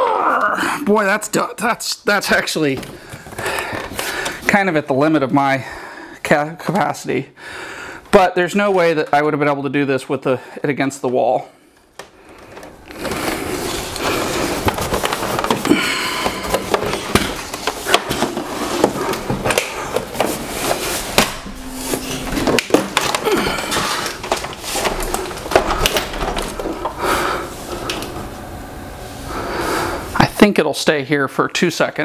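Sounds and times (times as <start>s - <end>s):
cables rustling: 11.8s - 30.5s.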